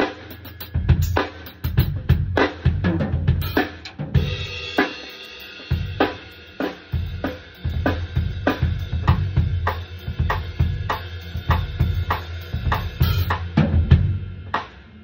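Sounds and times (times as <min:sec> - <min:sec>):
drum kit playing: 0:00.0 - 0:15.0
cymbal crash: 0:03.4 - 0:13.5.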